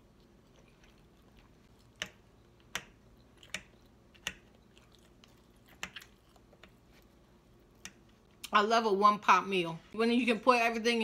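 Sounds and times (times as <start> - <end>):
person chewing food: 0.0 - 8.5.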